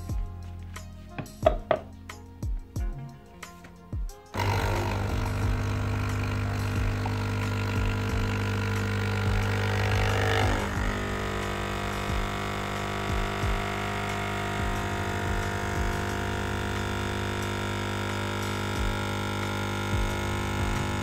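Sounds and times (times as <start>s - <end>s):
espresso machine pump buzzing: 4.3s - 21.0s.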